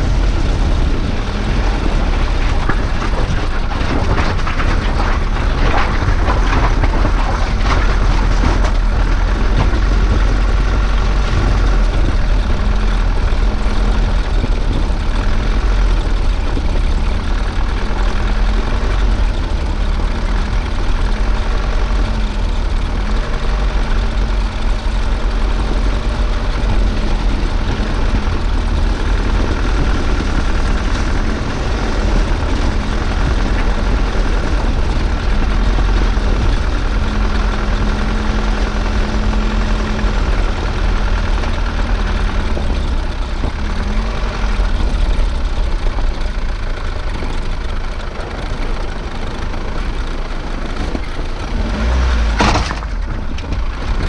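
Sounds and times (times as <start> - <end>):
tyres rumbling on stones: 0.0 - 54.0
vehicle engine drone: 0.0 - 54.0.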